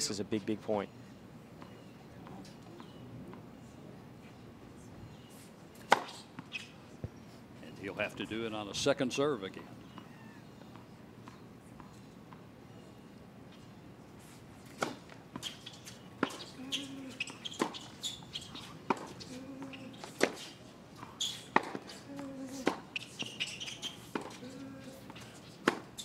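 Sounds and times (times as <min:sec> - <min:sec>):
short high squeaks: 0:05.8 - 0:06.8, 0:15.4 - 0:20.6, 0:21.2 - 0:22.0, 0:22.6 - 0:24.4, 0:25.2 - 0:26.0.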